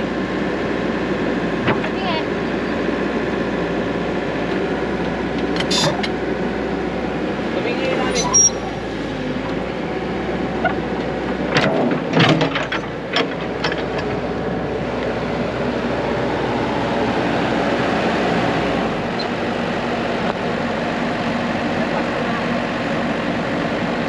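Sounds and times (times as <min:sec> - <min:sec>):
excavator engine idling: 0:00.0 - 0:24.0.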